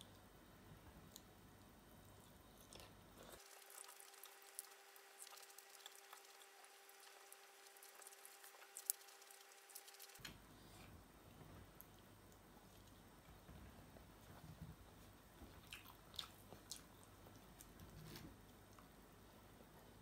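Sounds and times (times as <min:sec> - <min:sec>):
faint steady hum: 0:00.0 - 0:20.0
chewing: 0:02.2 - 0:10.2, 0:11.8 - 0:13.4, 0:15.5 - 0:18.9.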